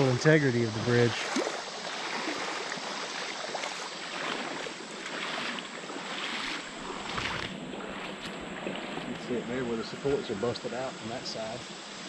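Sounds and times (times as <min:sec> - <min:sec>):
steady outdoor hiss: 0:00.0 - 0:12.0
footsteps on damp sand: 0:01.2 - 0:09.3.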